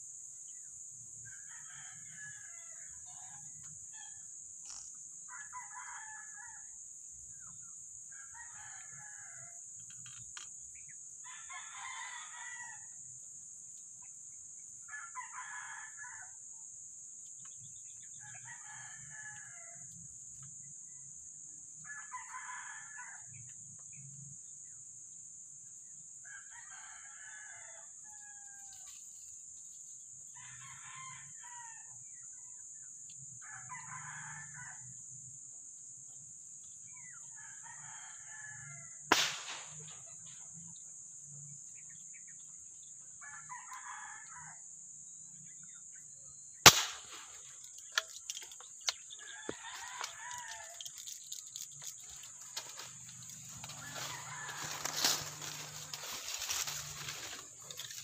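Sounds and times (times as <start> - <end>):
steady high-pitched hiss: 0.0 - 15.0, 23.2 - 33.6
roosters crowing: 11.2 - 13.0, 26.3 - 29.0, 30.3 - 31.9, 43.2 - 44.6, 46.7 - 58.0.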